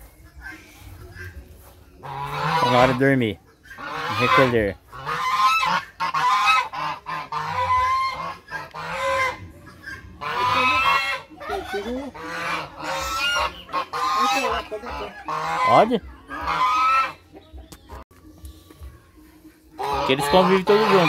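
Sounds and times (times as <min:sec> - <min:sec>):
geese honking: 0:00.0 - 0:18.0, 0:19.7 - 0:21.0.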